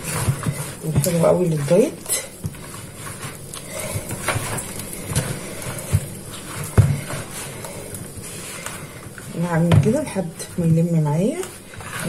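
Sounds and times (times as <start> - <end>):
dough squishing: 0.0 - 12.0
dough thumping against bowl: 9.6 - 10.2.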